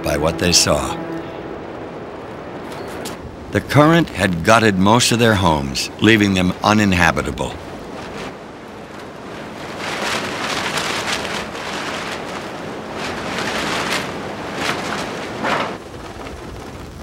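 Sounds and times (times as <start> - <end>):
wind gusting: 0.0 - 17.0
plastic sheeting flapping: 7.6 - 17.0.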